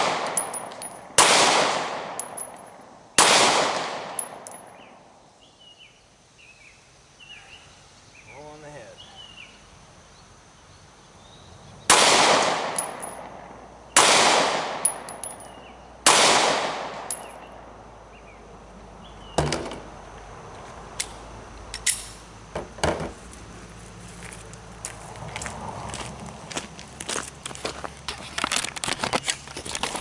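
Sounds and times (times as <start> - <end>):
pistol shots echoing: 0.0 - 2.6, 3.2 - 4.7, 11.9 - 17.4.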